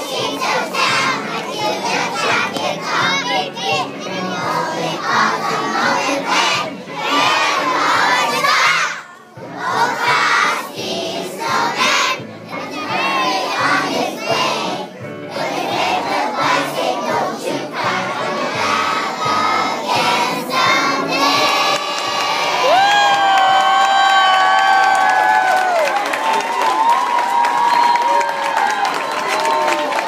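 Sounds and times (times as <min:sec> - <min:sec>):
children singing together: 0:00.0 - 0:22.6.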